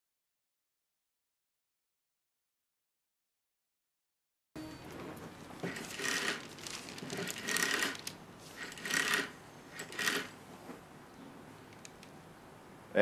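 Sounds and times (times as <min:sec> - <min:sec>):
rotary telephone dial whirring: 0:05.6 - 0:10.4.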